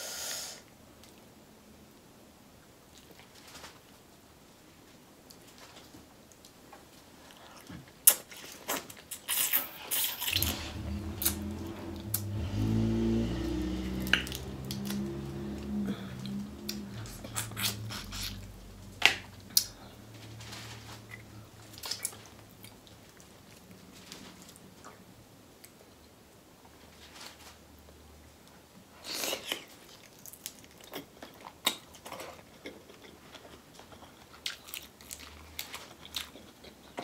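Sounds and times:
low droning hum: 10.4 - 23.6.

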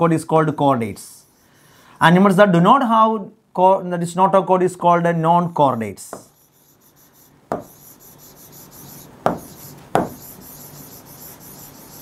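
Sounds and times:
pen rubbing on a board: 6.2 - 12.0
sharp pen taps: 7.5 - 7.8, 9.2 - 10.2.

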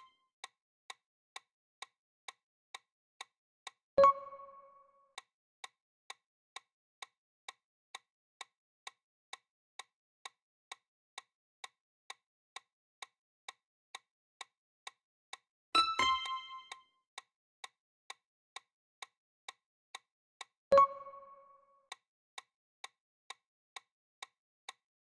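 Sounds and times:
steady timer ticking: 4.0 - 5.3, 7.9 - 17.3, 18.1 - 24.8
bright electronic chime: 15.8 - 16.7.

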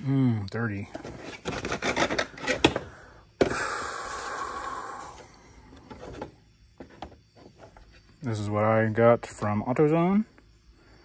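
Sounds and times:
air filter rustling scrape: 0.9 - 2.9.

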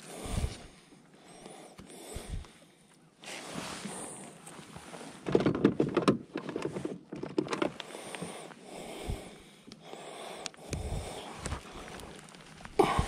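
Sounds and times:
soft rustling: 3.2 - 5.3, 10.8 - 13.0
handling clicks and knocks: 5.2 - 8.3.

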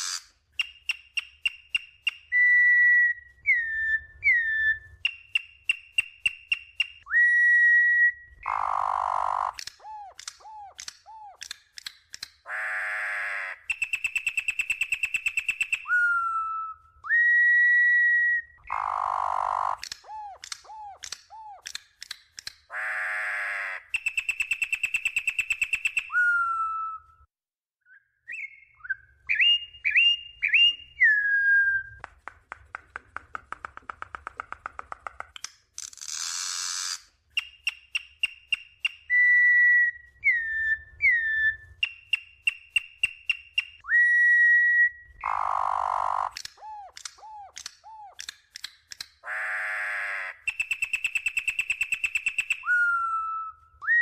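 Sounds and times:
bird singing whistled phrases: 0.6 - 8.4, 13.7 - 18.7, 23.9 - 27.1, 27.8 - 32.0, 37.4 - 45.8, 50.4 - 54.0.

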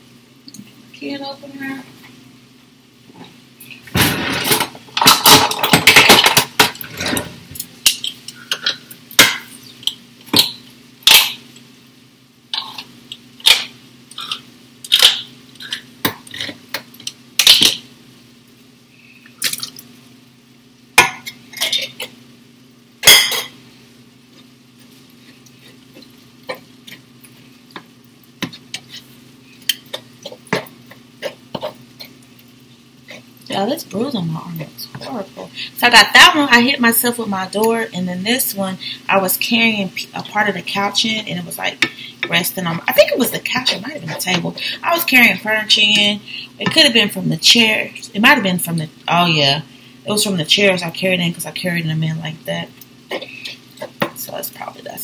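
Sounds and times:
steady low hum: 0.0 - 55.0
utensils clinking on cookware: 4.1 - 9.5.

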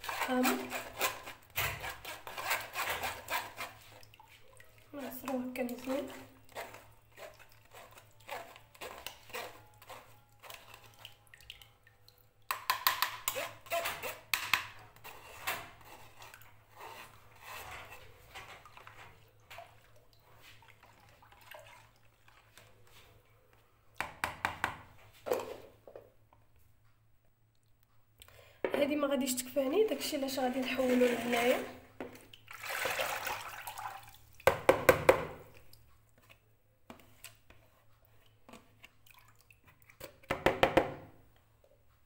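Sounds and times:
metal spoon scraping strainer: 0.0 - 4.0, 5.8 - 11.1, 13.2 - 14.3, 14.9 - 19.0, 29.8 - 31.8
juice dripping and trickling: 3.8 - 12.6, 32.3 - 34.4.

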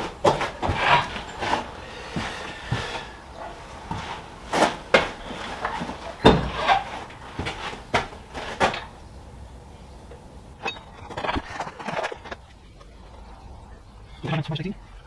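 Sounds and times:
metal knocks and clunks: 4.7 - 9.0.

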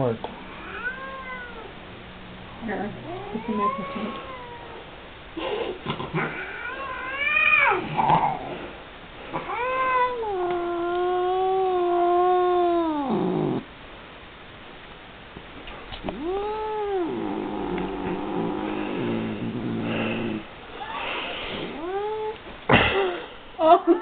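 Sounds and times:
cat yowling: 0.5 - 1.7, 3.0 - 4.8, 6.2 - 8.4, 9.4 - 13.6, 16.0 - 18.6, 21.7 - 22.4.

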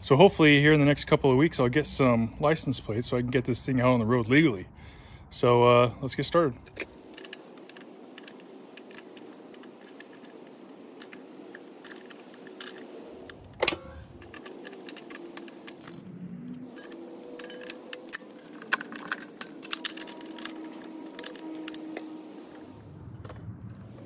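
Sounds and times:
sharp metallic clank: 13.5 - 16.1.

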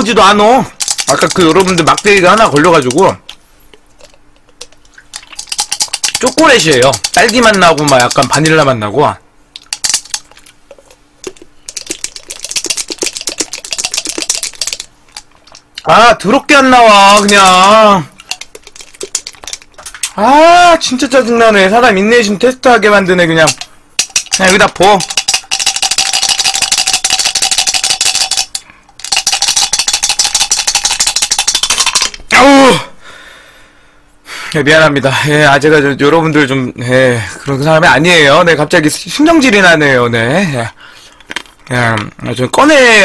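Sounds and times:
chocolate balls rattling in container: 0.0 - 3.2, 4.0 - 8.8, 9.6 - 15.6, 16.4 - 20.2, 23.0 - 32.3.

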